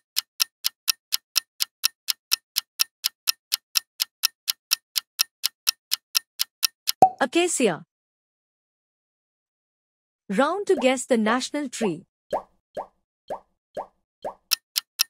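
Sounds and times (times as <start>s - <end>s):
clock ticking: 0.0s - 7.2s, 14.4s - 15.0s.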